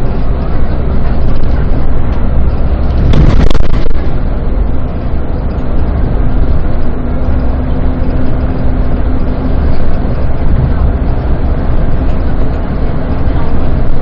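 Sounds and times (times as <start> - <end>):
bus engine and road rumble: 0.0 - 14.0
brief loud burst of noise: 3.0 - 4.2.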